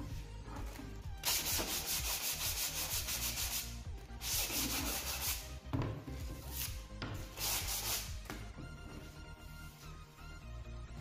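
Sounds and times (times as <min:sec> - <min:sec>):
sandpaper rasping on board edge: 0:01.2 - 0:05.6, 0:06.4 - 0:08.2.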